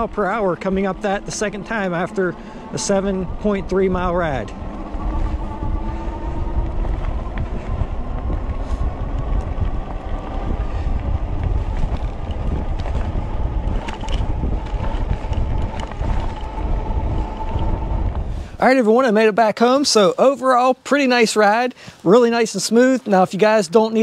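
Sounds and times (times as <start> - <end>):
faint steady whine: 0.0 - 18.8
tyres rumbling over gravel: 0.0 - 18.9
wind buffeting microphone: 0.0 - 20.1.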